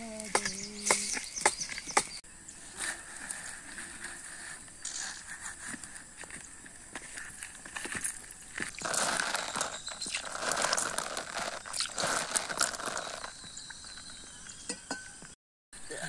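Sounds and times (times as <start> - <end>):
water splashing on a leaf: 8.7 - 13.4.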